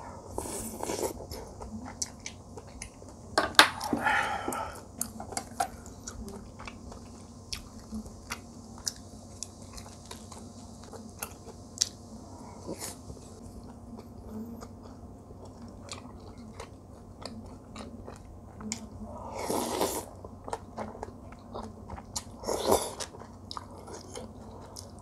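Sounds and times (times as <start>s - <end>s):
person chewing and biting: 19.4s - 25.0s.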